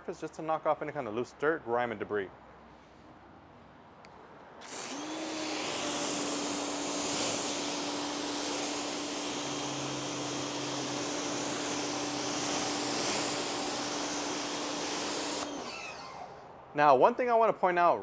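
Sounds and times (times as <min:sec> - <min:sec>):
pressure washer motor hum: 0:04.6 - 0:16.4
water jet spraying: 0:04.7 - 0:15.7.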